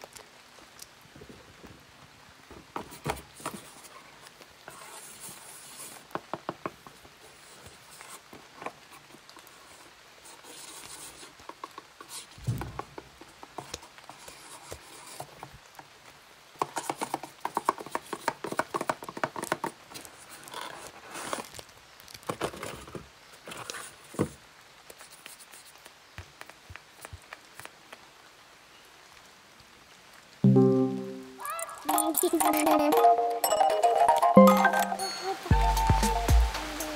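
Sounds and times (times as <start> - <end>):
paper rustling and scratching: 2.8 - 15.9, 16.6 - 27.8
soft thump: 12.4 - 12.8.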